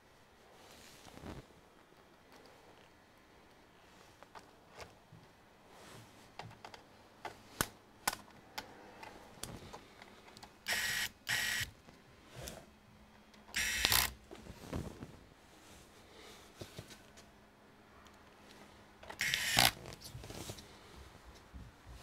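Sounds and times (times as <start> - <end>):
powered screwdriver whirring: 10.7 - 11.7, 13.5 - 14.2, 19.1 - 19.8.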